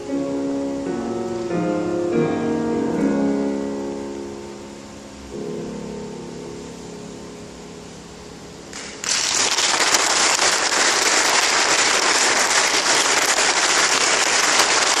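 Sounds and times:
piano chord: 0:00.0 - 0:15.0
audience applause: 0:08.7 - 0:15.0.

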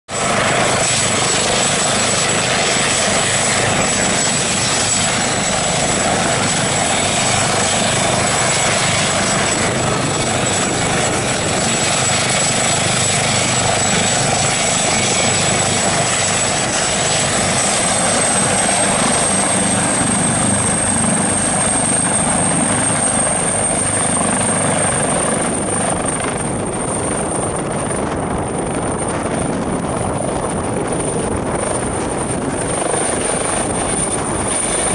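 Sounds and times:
helicopter rotor noise: 0:00.1 - 0:34.9
helicopter turbine whine: 0:00.1 - 0:34.9.

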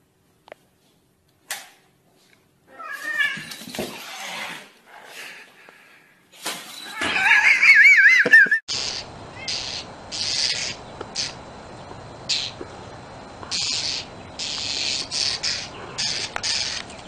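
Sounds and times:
cat yowling: 0:06.9 - 0:08.2.

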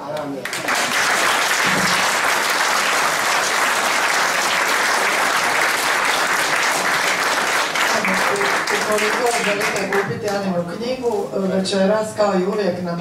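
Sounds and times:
audience applauding: 0:00.1 - 0:10.4.

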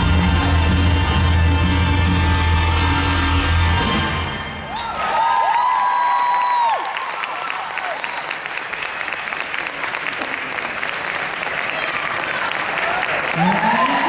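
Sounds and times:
high held cheer: 0:04.6 - 0:10.6, 0:11.4 - 0:14.0
audience applauding: 0:04.7 - 0:14.0.

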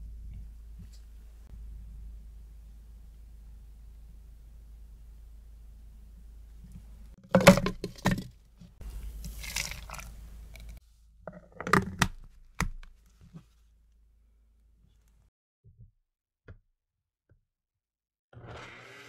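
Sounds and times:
blender jar knocks: 0:07.4 - 0:08.3
juice pouring: 0:09.1 - 0:10.8
frozen pieces clacking into blender: 0:09.2 - 0:10.8.

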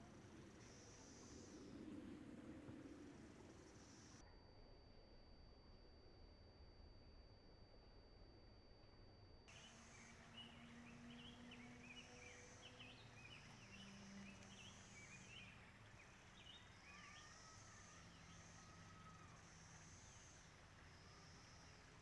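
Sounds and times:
distant cicadas chorus: 0:00.0 - 0:04.2, 0:09.5 - 0:22.0.

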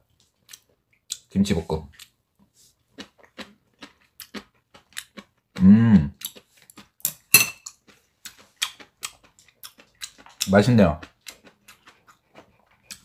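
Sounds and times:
close chewing with wet mouth clicks: 0:03.0 - 0:13.0
person humming mmm: 0:05.6 - 0:06.2.

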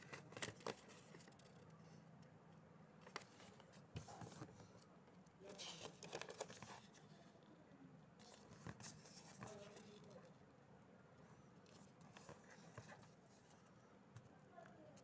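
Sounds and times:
paper rustling and creasing: 0:00.0 - 0:02.0, 0:03.0 - 0:04.8, 0:05.5 - 0:07.2, 0:08.2 - 0:10.2.

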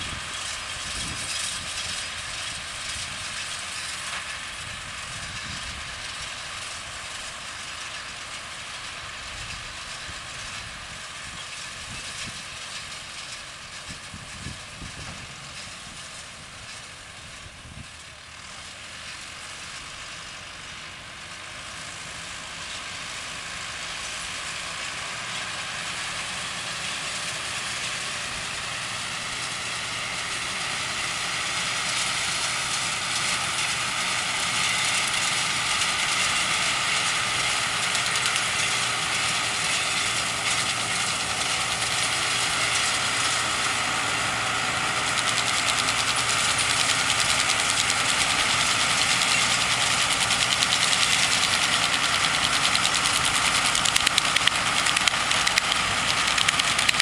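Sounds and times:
tractor engine running: 0:00.0 - 0:57.0
sharp clatters: 0:45.1 - 0:57.0.

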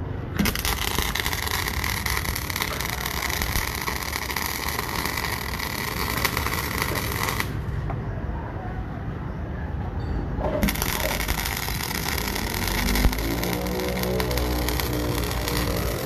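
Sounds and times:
welder arc crackling: 0:00.3 - 0:07.8, 0:10.6 - 0:16.0.

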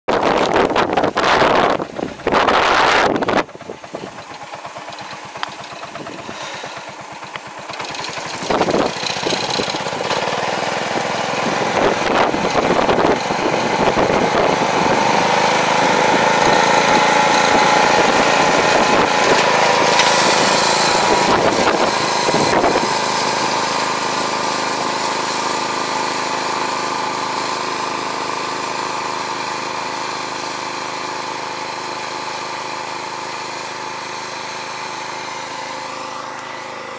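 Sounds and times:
tractor engine running: 0:00.1 - 0:36.9.

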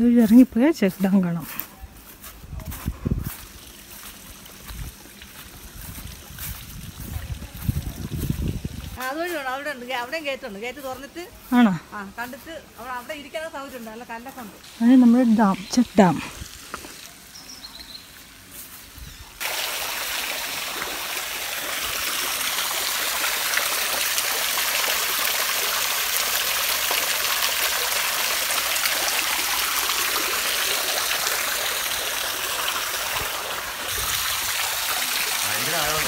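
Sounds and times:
water splashing into pool: 0:19.4 - 0:36.0.

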